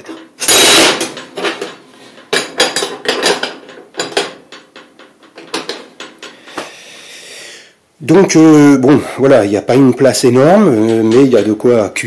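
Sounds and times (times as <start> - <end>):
metal cooker parts clinking: 0.0 - 6.5.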